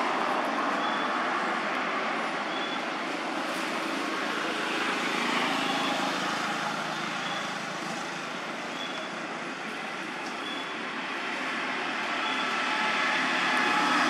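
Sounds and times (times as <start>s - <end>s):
outdoor background noise: 0.0s - 14.0s
faint high chirp: 2.5s - 2.8s, 8.7s - 9.1s, 10.4s - 10.7s.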